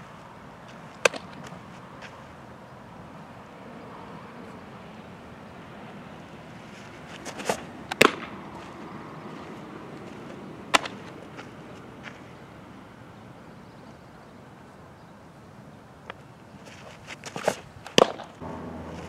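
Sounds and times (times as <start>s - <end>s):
outdoor background: 0.0s - 19.0s
ball popping into mitt: 1.0s - 1.5s.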